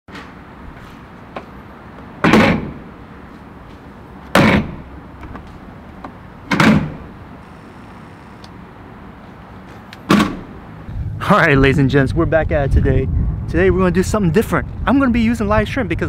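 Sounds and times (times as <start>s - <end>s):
loud heavy thumps: 2.2s - 2.9s, 4.3s - 4.9s, 6.5s - 7.1s, 10.1s - 11.1s.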